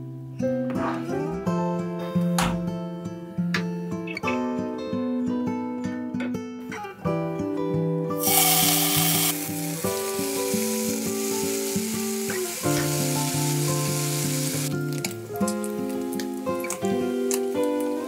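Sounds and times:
bacon sizzling in frying pan: 8.2 - 18.0.

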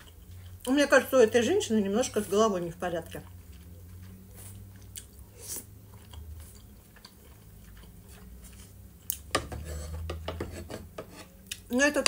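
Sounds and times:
chewing with mouth clicks: 0.0 - 0.8, 3.0 - 9.3
metal spoon scraping wooden bowl: 9.4 - 11.4.

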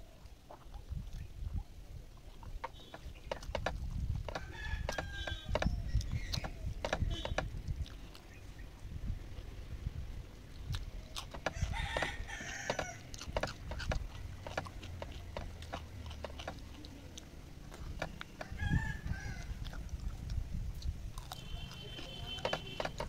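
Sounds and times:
rooster crowing: 4.3 - 5.5, 11.5 - 13.2, 18.4 - 19.6
fingers mixing rice on metal plate: 10.8 - 23.0.

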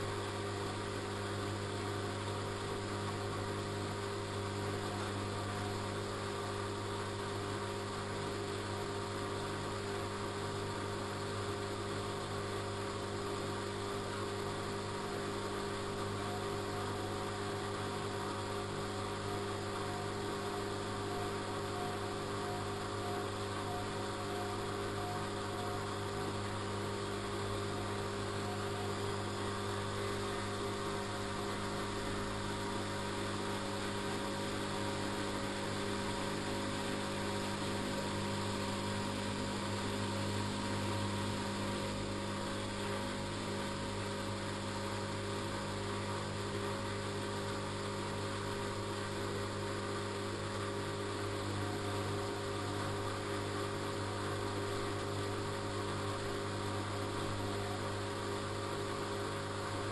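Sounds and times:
washing machine drum humming: 15.8 - 55.6.

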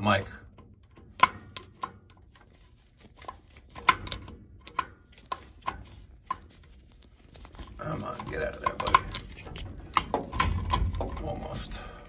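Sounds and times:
screwdriver metallic clicks: 0.2 - 2.2, 3.2 - 6.4, 8.2 - 11.4.

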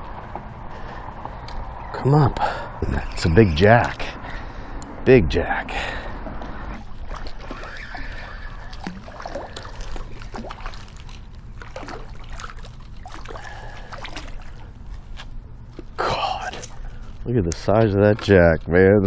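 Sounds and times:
fish splashing at the surface: 6.8 - 16.0.

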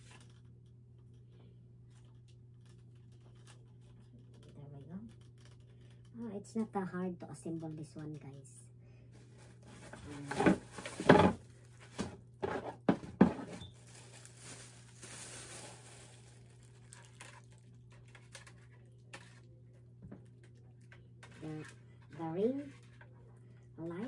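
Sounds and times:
plastic bag crinkling: 9.2 - 12.0, 13.5 - 19.5.

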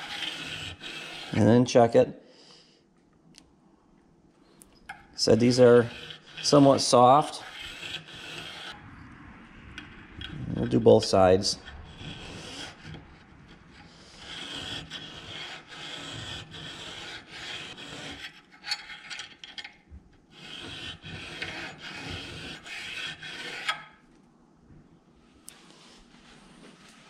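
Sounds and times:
metal scraping on file: 0.0 - 1.6, 4.9 - 19.7, 20.3 - 24.0.

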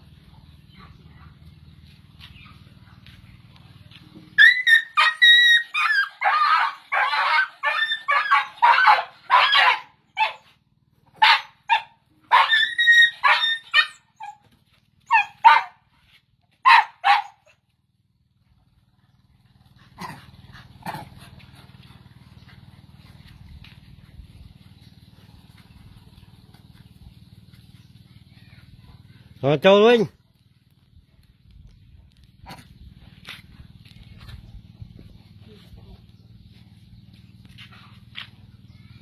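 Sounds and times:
dog barking and yipping: 4.4 - 17.6.

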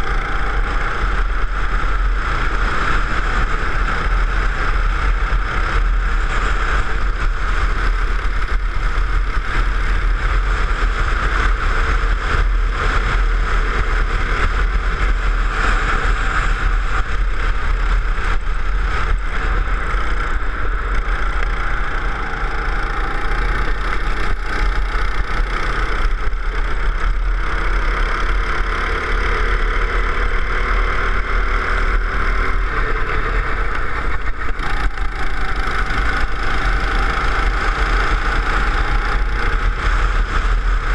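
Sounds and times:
go-kart engine running hard: 0.0 - 40.9
wind noise on microphone: 31.4 - 40.9.

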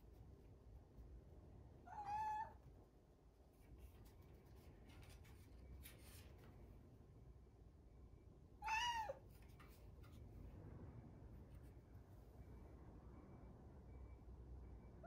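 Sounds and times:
young cat meowing: 1.9 - 2.6, 8.6 - 9.2.

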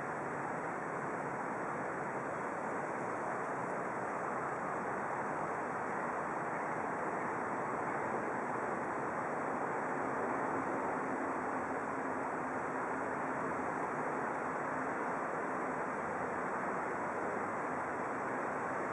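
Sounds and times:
distant traffic: 0.0 - 18.9
wind: 0.0 - 18.9
rushing water: 0.1 - 18.9.

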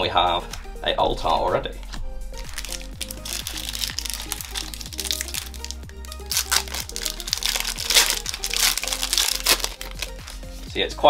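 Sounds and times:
background music with beat: 0.0 - 11.0
foil wrapper crinkling: 2.4 - 10.4.

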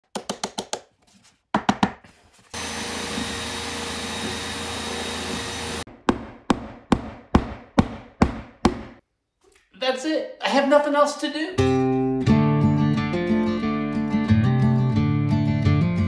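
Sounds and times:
electric drill boring into wood: 2.6 - 5.9
sharp knocks: 5.9 - 9.0
hammer tapping a nail: 6.1 - 9.0.

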